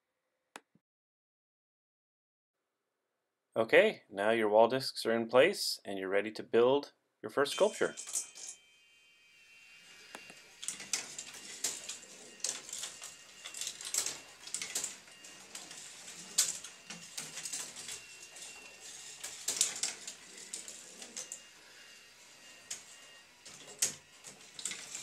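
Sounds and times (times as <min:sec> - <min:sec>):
marbles clattering on wooden tracks: 0:10.6 - 0:21.4.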